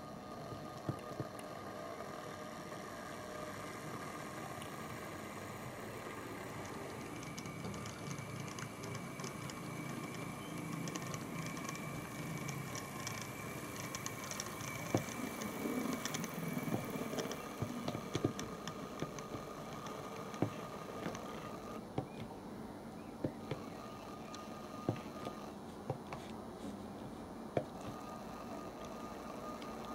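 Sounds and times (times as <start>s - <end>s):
model train motor whine: 0.0s - 21.8s, 23.2s - 25.7s, 27.6s - 29.9s
wheels clicking over track: 6.0s - 22.3s.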